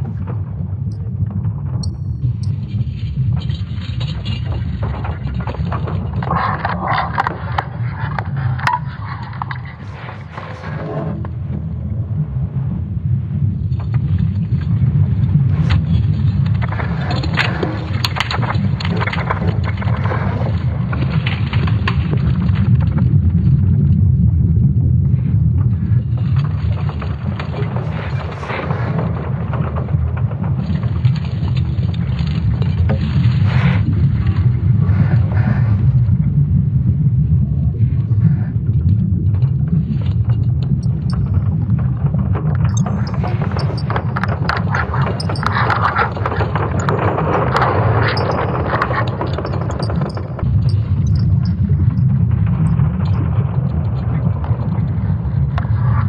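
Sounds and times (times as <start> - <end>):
faint crackles: 0.0 - 24.1, 25.0 - 36.5, 37.3 - 56.0
deep steady rumble: 0.0 - 56.0
rustling flurries: 15.5 - 21.7, 42.6 - 52.1.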